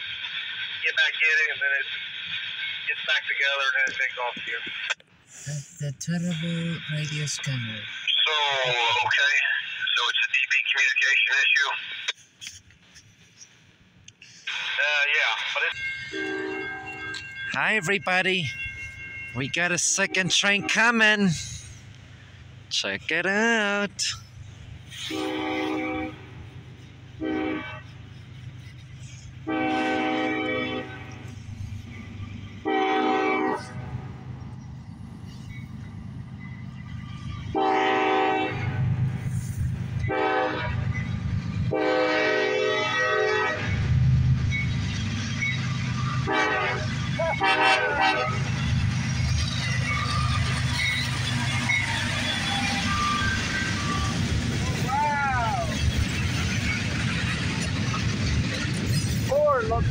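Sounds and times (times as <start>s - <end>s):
low steady train rumble: 0.0s - 59.9s
wheel and rail noise: 11.2s - 59.9s
locomotive air horn blasts: 16.0s - 17.3s, 24.9s - 26.5s, 27.2s - 28.0s, 29.4s - 31.3s, 32.6s - 34.1s, 37.5s - 39.0s, 40.0s - 40.9s, 41.7s - 43.8s, 46.2s - 48.5s.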